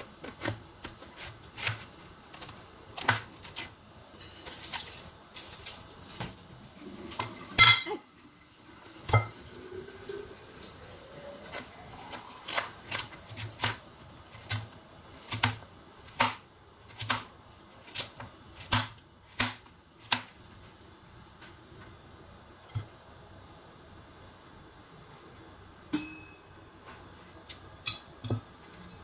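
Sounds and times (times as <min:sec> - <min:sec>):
knife cutting watermelon: 0:00.0 - 0:03.7.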